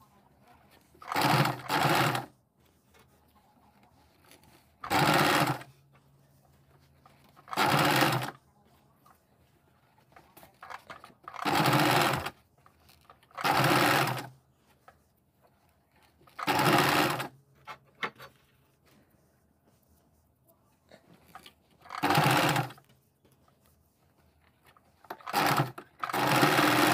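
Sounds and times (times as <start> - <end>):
sewing machine stitching: 0.7 - 2.4, 3.7 - 5.8, 7.0 - 8.4, 10.0 - 14.4, 16.0 - 18.3, 21.3 - 22.9, 24.6 - 26.9.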